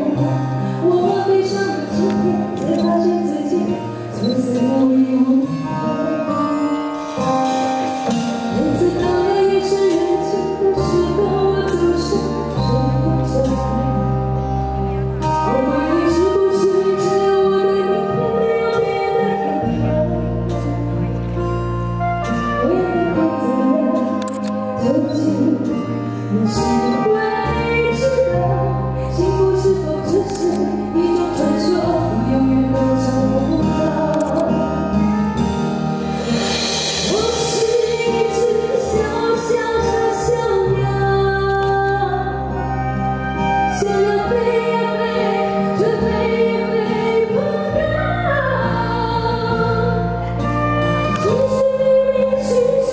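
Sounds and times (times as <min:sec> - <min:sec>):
woman singing: 0:00.0 - 0:07.4, 0:08.4 - 0:14.4, 0:15.2 - 0:21.3, 0:22.4 - 0:35.0, 0:36.8 - 0:52.9
live pop band playing: 0:00.0 - 0:52.9
cymbals: 0:35.8 - 0:39.2.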